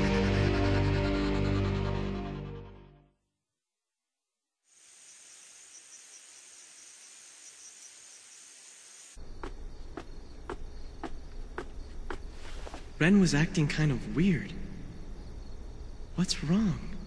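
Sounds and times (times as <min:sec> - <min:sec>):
crickets chirring: 0:04.7 - 0:17.0
footsteps on staircase: 0:09.3 - 0:13.0.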